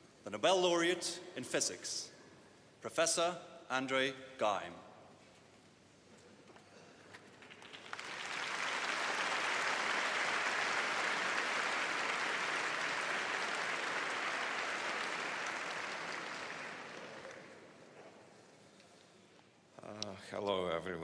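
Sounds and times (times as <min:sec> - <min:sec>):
audience applauding: 0:07.4 - 0:17.8.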